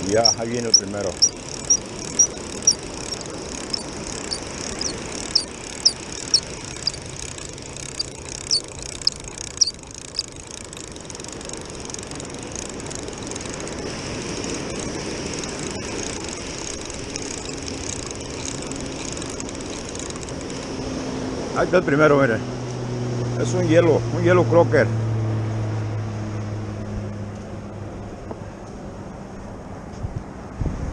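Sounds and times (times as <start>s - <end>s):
fishing reel squeaking: 0.0s - 20.6s
low steady drone: 0.0s - 29.5s
surf washing on beach: 10.8s - 21.8s.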